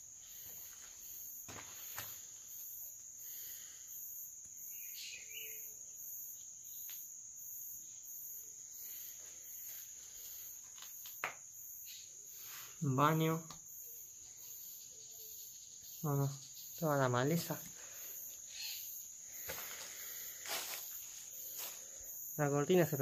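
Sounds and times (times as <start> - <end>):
insect chirps pulsing: 0.0 - 23.0
insects trilling: 0.0 - 23.0
footsteps on dry leaves: 19.4 - 22.0.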